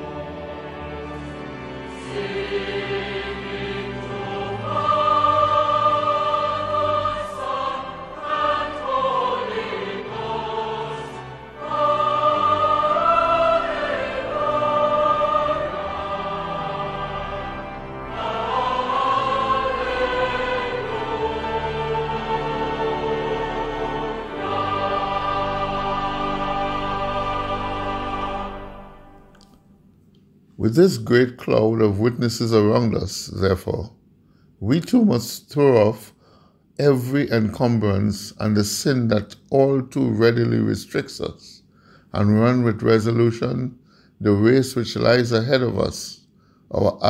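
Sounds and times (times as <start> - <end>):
choir singing long held notes: 0.0 - 29.6.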